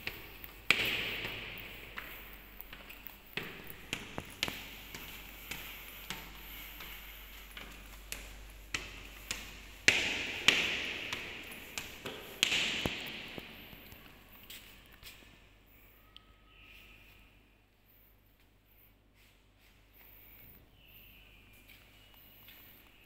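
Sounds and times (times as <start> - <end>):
footsteps on tiled stairs: 0.0 - 15.5, 21.5 - 23.0.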